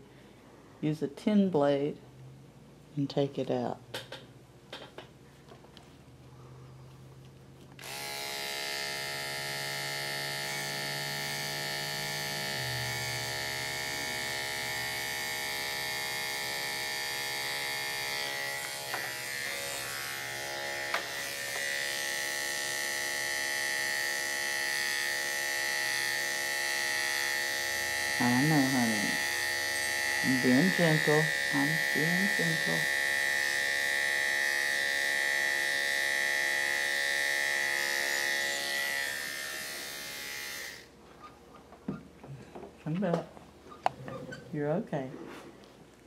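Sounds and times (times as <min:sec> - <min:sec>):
dog clipper buzzing: 0:07.8 - 0:40.9.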